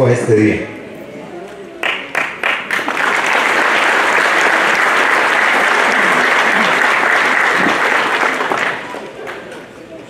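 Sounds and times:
crowd applauding: 0:01.8 - 0:09.7.

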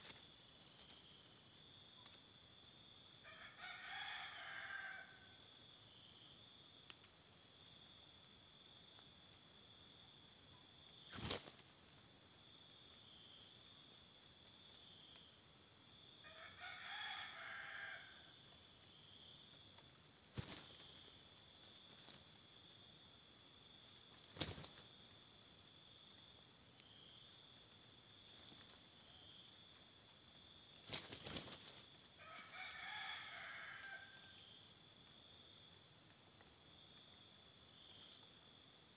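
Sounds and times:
high-pitched insect chorus: 0:00.0 - 0:38.9
rooster crowing: 0:03.2 - 0:05.4, 0:16.2 - 0:18.3, 0:32.2 - 0:34.3.

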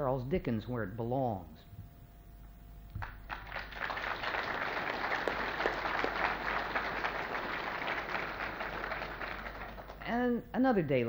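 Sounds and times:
audience applauding: 0:03.0 - 0:10.1.

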